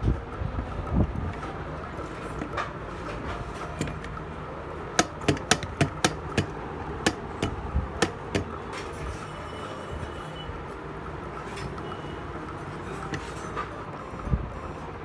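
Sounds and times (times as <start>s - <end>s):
low workshop hum: 0.0s - 15.0s
metal parts knocking and clinking: 1.3s - 9.3s.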